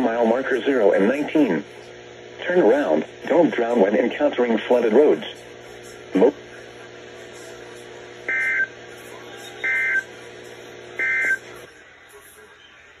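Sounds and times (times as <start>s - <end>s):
steady low hum: 0.0s - 11.9s.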